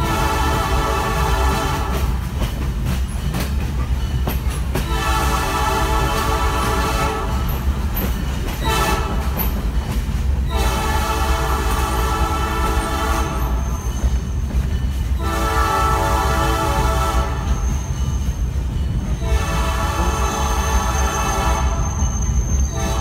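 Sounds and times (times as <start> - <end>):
train horn blasts: 0.0 - 2.2, 4.8 - 7.7, 8.6 - 9.5, 10.5 - 14.0, 15.2 - 17.8, 19.2 - 23.0
train rumbling on track: 0.0 - 23.0.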